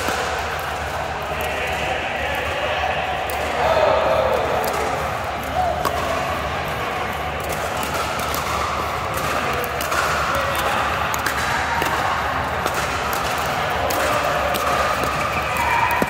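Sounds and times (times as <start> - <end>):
steady background noise: 0.0 - 16.0
paddles striking plastic ball: 5.8 - 6.2.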